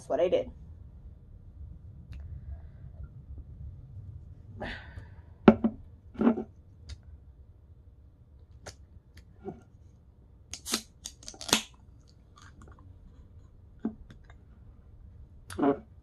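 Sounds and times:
can pull tab clicking and cracking: 0:10.5 - 0:11.8.

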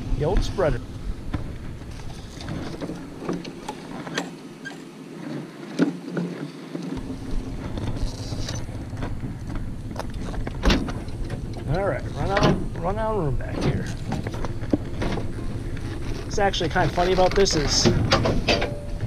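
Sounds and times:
plastic spreader rattling on pavement: 0:14.0 - 0:17.9.

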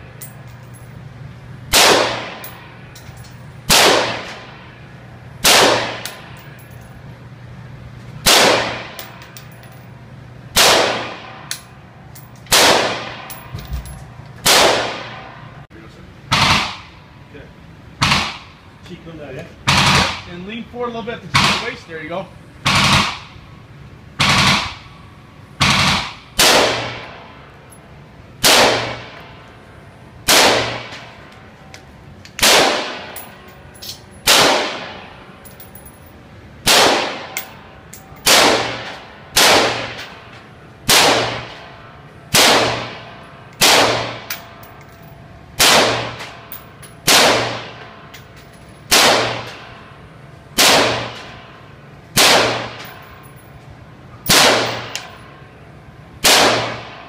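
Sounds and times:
rifle shots echoing indoors: 0:01.7 - 0:02.7, 0:03.7 - 0:04.6, 0:05.4 - 0:06.3, 0:08.2 - 0:09.1, 0:10.5 - 0:11.5, 0:12.5 - 0:13.5, 0:14.4 - 0:15.4, 0:25.6 - 0:27.2, 0:28.4 - 0:29.2, 0:30.2 - 0:31.2, 0:32.4 - 0:33.3, 0:34.2 - 0:35.1, 0:36.6 - 0:37.6, 0:38.2 - 0:40.2, 0:40.8 - 0:41.7, 0:42.3 - 0:44.6, 0:45.6 - 0:48.0, 0:48.9 - 0:49.8, 0:50.6 - 0:51.6, 0:52.2 - 0:53.1, 0:54.2 - 0:55.3, 0:56.2 - 0:57.0.

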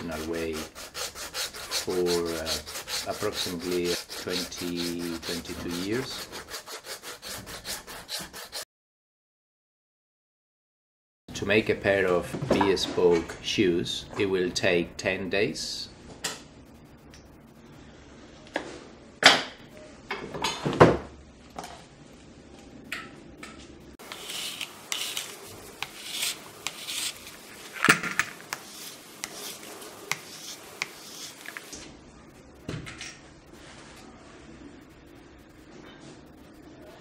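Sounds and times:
abrasive strip scraping leather: 0:00.0 - 0:08.6, 0:24.0 - 0:27.4, 0:28.5 - 0:31.7.

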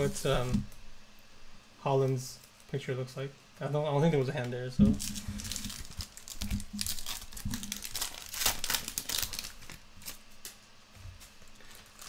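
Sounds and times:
plastic wrapper crinkling: 0:04.8 - 0:10.6, 0:11.2 - 0:12.0.

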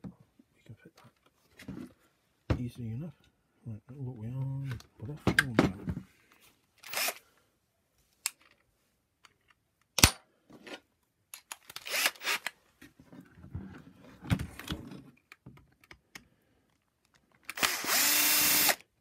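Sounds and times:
plastic parts clicking and rustling: 0:08.2 - 0:12.6.

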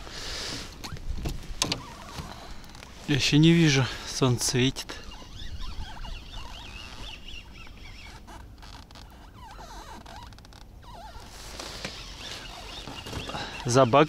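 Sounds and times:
wind rumbling on microphone: 0:00.8 - 0:02.9, 0:05.0 - 0:08.1
small birds chirping: 0:01.8 - 0:14.0.

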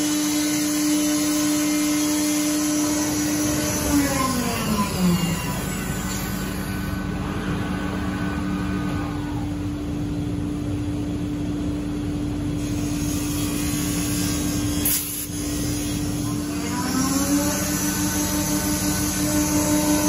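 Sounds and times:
dust extraction running: 0:00.0 - 0:20.0
router machinery drone: 0:00.0 - 0:20.0
low hum: 0:02.7 - 0:14.8.

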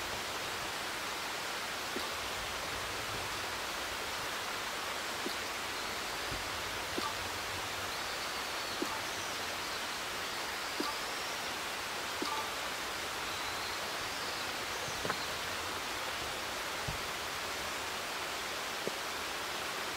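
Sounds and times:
faint thin high calls: 0:12.2 - 0:15.3.

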